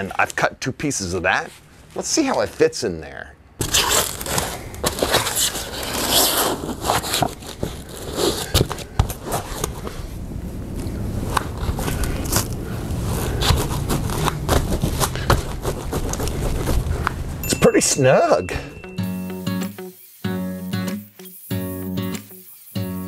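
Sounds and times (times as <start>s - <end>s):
board scraping against vinyl: 3.6s - 10.1s, 11.2s - 17.4s.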